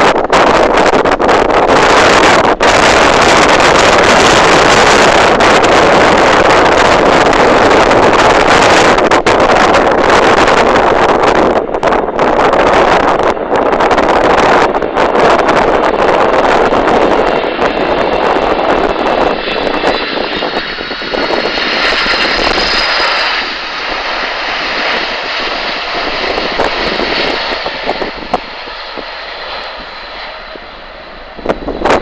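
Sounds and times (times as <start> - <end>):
jet engines roaring with whine: 0.0 - 32.0.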